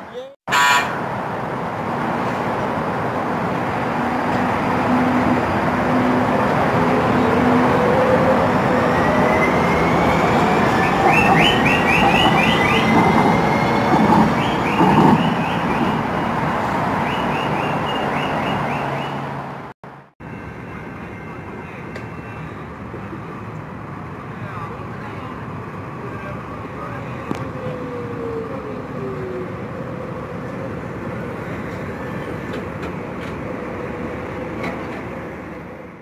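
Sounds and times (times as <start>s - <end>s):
train wheels rumbling on rail: 1.9s - 18.4s, 29.8s - 36.0s.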